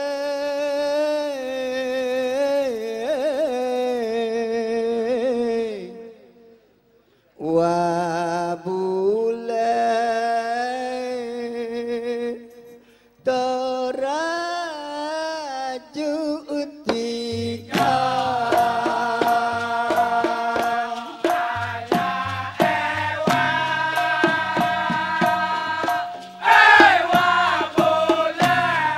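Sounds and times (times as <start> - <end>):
man singing into a microphone: 0.0 - 6.6, 7.4 - 26.2
percussion: 16.8 - 28.9
chorus singing: 17.5 - 28.9
rhythmic hand-clapping: 17.7 - 28.9.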